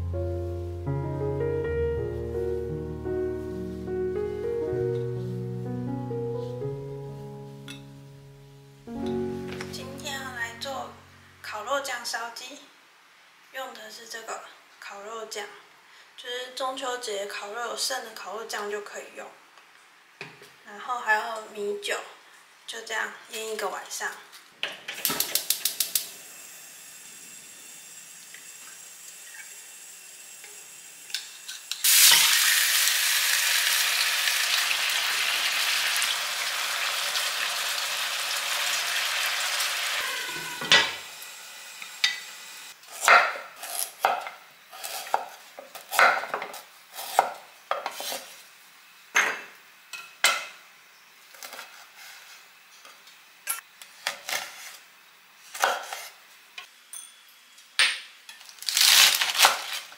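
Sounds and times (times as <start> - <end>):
chicken sizzling in wok: 25.1 - 42.8.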